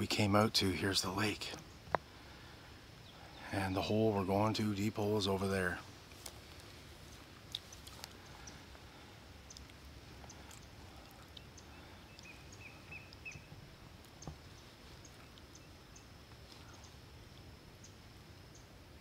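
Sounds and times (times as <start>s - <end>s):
low rumble of wind: 0.0s - 19.0s
small bird chirping: 7.4s - 8.7s, 9.4s - 18.8s.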